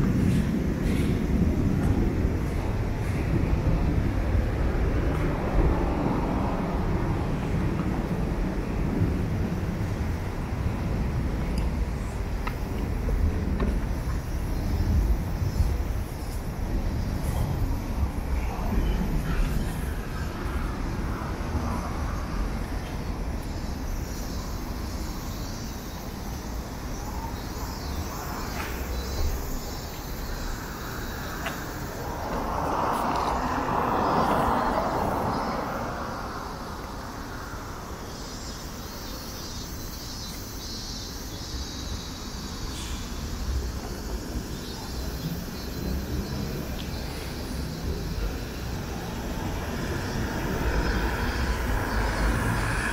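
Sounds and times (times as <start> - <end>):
low traffic rumble: 0.0 - 52.9
vehicle rushing past: 30.4 - 37.8, 49.1 - 52.9.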